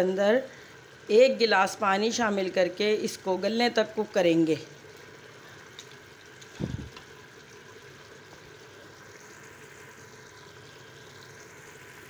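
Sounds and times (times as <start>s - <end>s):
meat sizzling in oil: 4.3s - 12.0s.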